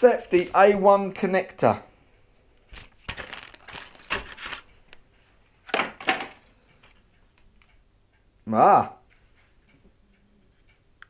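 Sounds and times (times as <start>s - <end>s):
paper and cardboard rustling: 2.7s - 4.7s.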